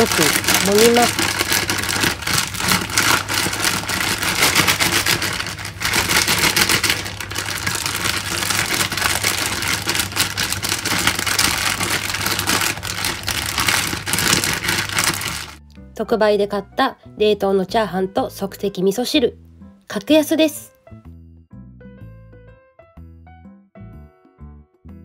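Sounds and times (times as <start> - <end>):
plastic bag crinkling: 0.0 - 15.6.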